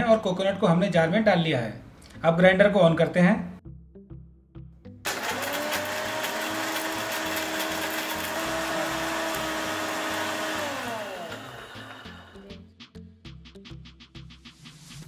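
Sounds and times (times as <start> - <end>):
mixer grinder motor whining: 5.1 - 12.6.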